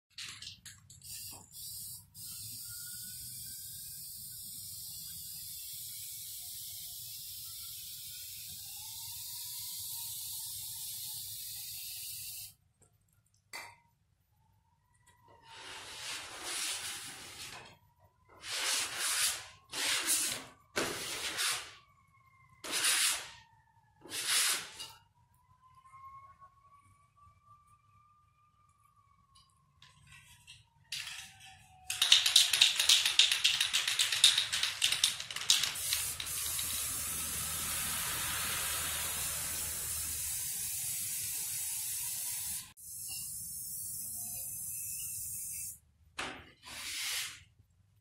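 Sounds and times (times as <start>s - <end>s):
spray paint can hissing: 0.8s - 12.6s, 31.9s - 45.8s.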